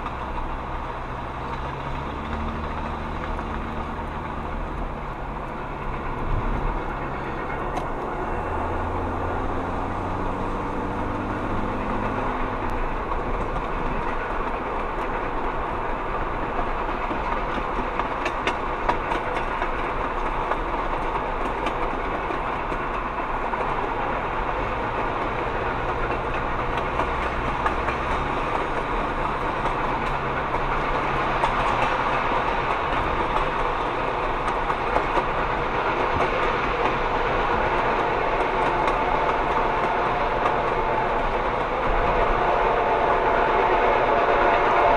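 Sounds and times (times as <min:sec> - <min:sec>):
car engine hum and road noise: 0:00.0 - 0:14.2
train wheel clicks: 0:00.0 - 0:43.2
train coaches rolling on track: 0:00.0 - 0:44.9.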